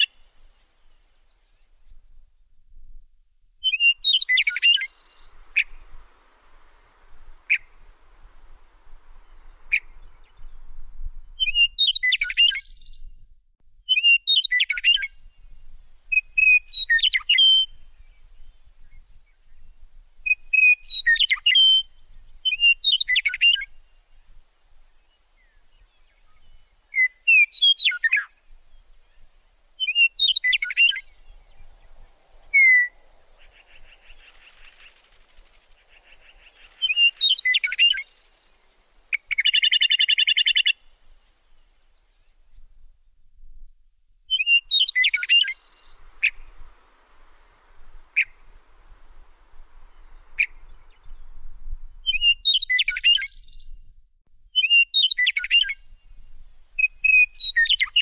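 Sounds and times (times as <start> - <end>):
songbird chirping: 3.6 - 43.6, 44.3 - 58.0.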